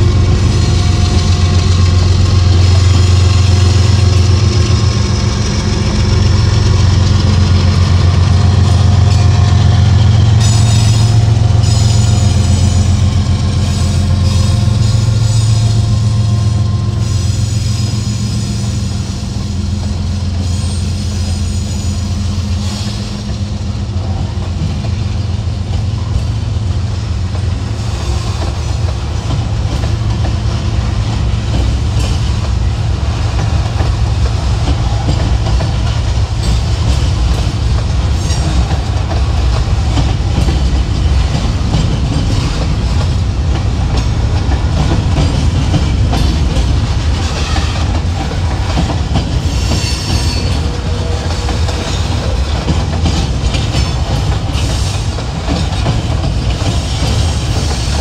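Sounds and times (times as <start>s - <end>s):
freight train rumbling: 0.0s - 58.0s
wheels clicking over rail joints: 27.2s - 58.0s.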